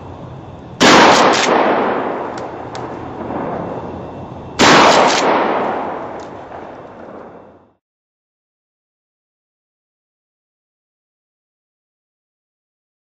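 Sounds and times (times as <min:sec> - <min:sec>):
shotgun shots with echo: 0:00.8 - 0:03.7, 0:04.6 - 0:07.4.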